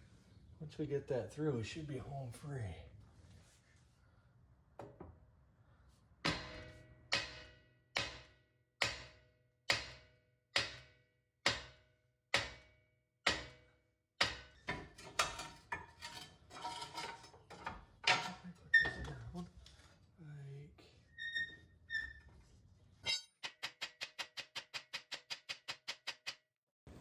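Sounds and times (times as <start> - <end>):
sledgehammer striking metal: 6.2 - 11.8.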